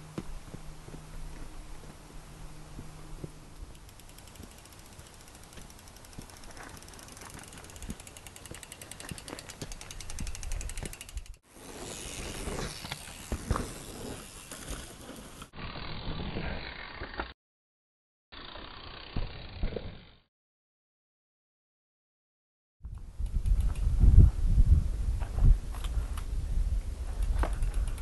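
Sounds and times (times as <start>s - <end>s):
bicycle freewheel ratchet buzzing: 3.6s - 14.9s, 15.6s - 17.3s, 18.4s - 20.2s, 23.0s - 24.0s, 27.1s - 28.0s
bike thumps: 12.1s - 13.8s.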